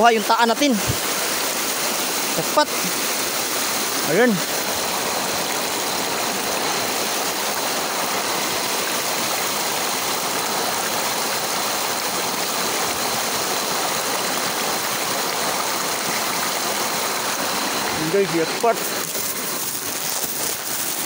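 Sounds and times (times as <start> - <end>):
stream water rushing over rocks: 0.0 - 21.0.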